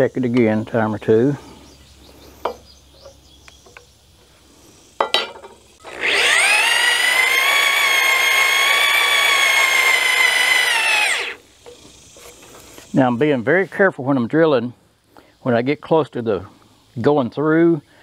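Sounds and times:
power drill boring into wood: 5.8s - 11.4s.

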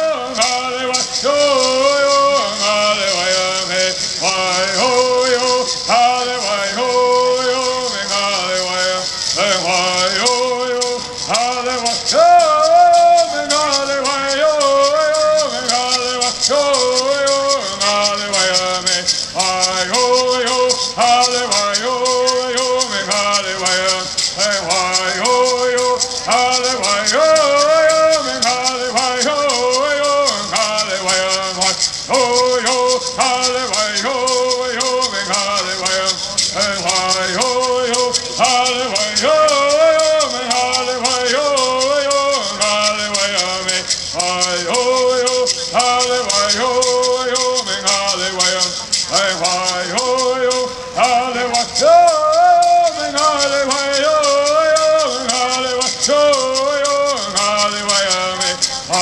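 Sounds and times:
gourd rattles shaken: 0.0s - 59.0s
voices singing in unison: 0.0s - 59.0s.

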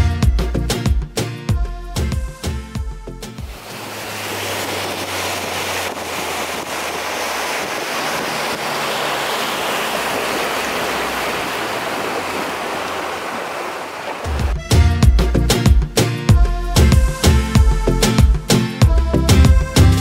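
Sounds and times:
water noise from moving boat: 3.3s - 14.7s
wind on microphone: 3.4s - 14.6s.

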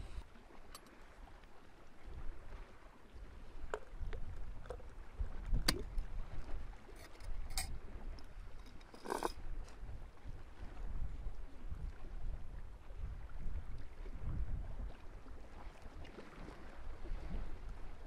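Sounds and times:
glass jar clicks and knocks: 7.0s - 7.7s, 8.6s - 9.4s.

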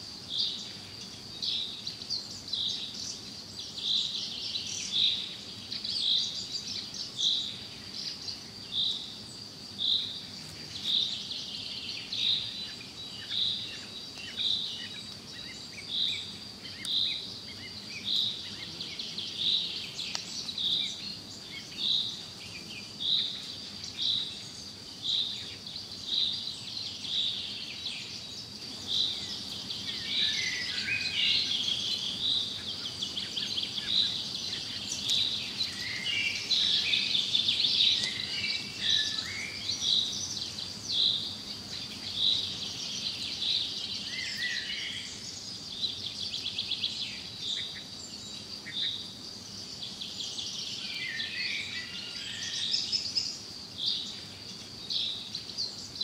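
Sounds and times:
high insect hum: 0.0s - 56.0s.

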